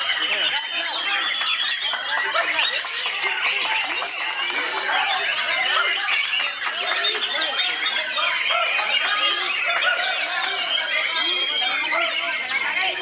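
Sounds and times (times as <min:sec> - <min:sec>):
birds chirping and warbling: 0:00.0 - 0:13.0
people talking: 0:00.0 - 0:13.0.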